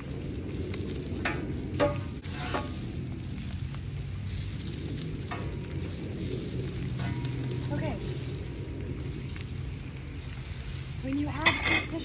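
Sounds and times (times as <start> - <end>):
peppers sizzling on a griddle: 0.0 - 12.0
metal spatula scraping steel: 1.8 - 2.8, 6.9 - 7.6, 11.3 - 12.0.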